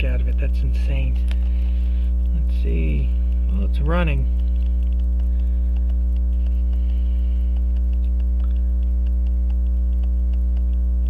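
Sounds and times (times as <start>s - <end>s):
loud mains hum: 0.0s - 11.0s
pocket watch ticking: 4.1s - 11.0s.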